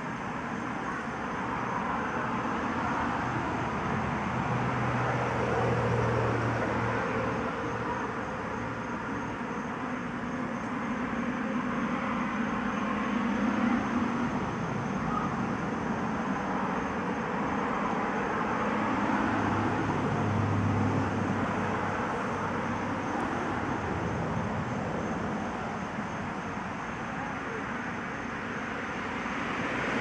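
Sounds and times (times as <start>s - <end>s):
traffic-like rumble and hiss: 0.0s - 30.0s.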